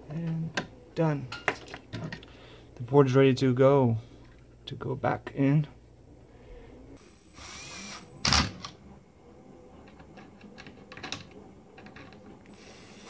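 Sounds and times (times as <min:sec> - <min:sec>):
cordless drill driving screws: 0:07.2 - 0:08.4, 0:12.5 - 0:13.0.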